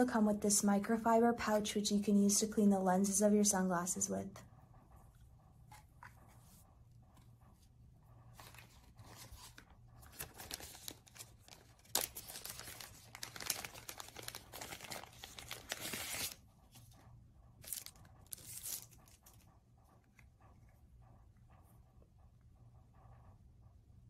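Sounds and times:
faint low hum: 0.0s - 24.0s
plastic sleeve crinkling: 8.5s - 16.4s, 17.6s - 19.0s.

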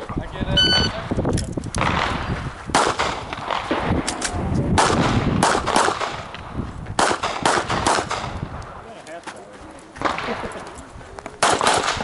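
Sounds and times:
pistol shots with echo: 1.8s - 6.4s, 7.0s - 8.4s, 11.4s - 12.0s.

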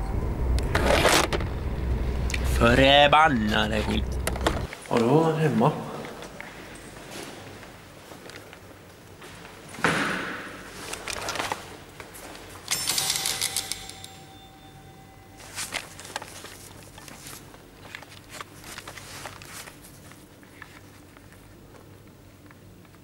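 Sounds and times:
loud metallic jangle: 12.7s - 16.1s.

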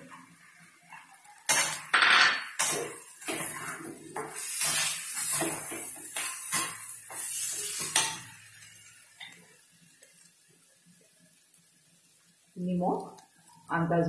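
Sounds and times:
spatula scraping frying pan: 2.5s - 8.9s.

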